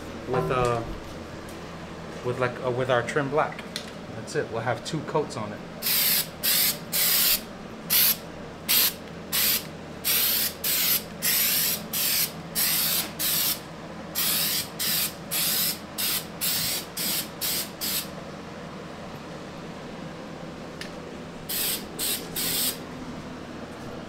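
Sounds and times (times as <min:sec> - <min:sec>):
aerosol can spraying: 0:05.8 - 0:13.6, 0:14.2 - 0:18.1, 0:21.5 - 0:22.8.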